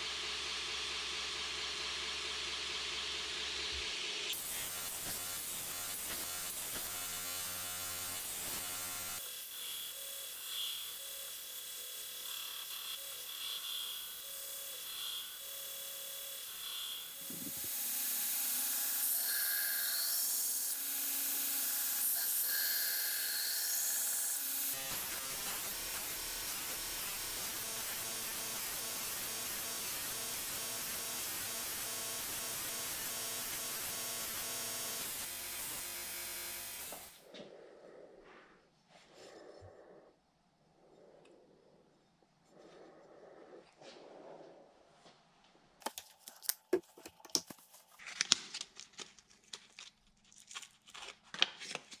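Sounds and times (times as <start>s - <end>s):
belt grinder grinding knife blade: 4.3s - 37.2s.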